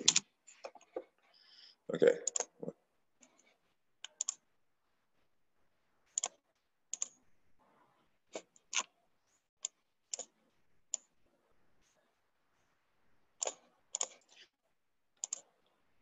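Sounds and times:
computer mouse and keyboard clicks: 0:00.0 - 0:01.0, 0:04.0 - 0:04.4, 0:06.1 - 0:07.2, 0:13.4 - 0:14.4, 0:15.2 - 0:15.5.

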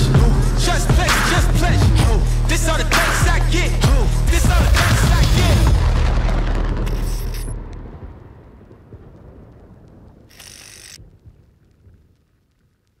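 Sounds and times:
hip hop music: 0:00.0 - 0:07.4
low rumbling tail: 0:00.0 - 0:10.3.

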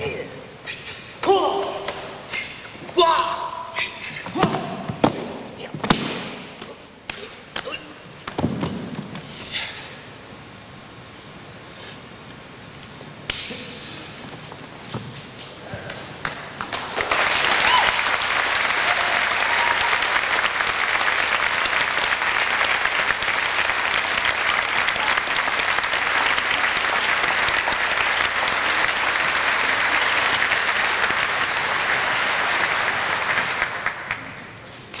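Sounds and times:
audience applauding: 0:16.2 - 0:34.5.

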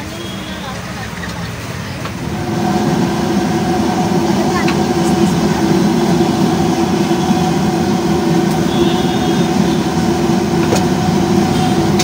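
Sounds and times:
low steady roar with hum: 0:02.0 - 0:12.0.

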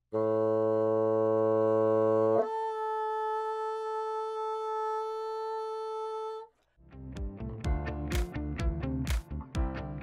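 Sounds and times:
solo bassoon: 0:00.1 - 0:06.5.

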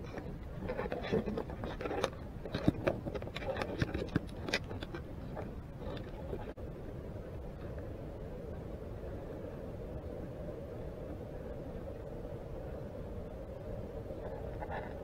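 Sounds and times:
underwater rumble and hiss: 0:00.0 - 0:15.0.

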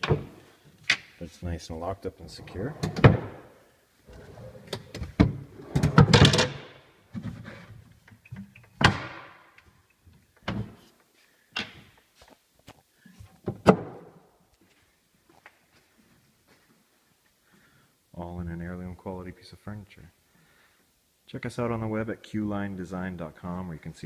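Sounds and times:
wooden drawers knocking shut: 0:02.7 - 0:03.4, 0:04.2 - 0:07.4.

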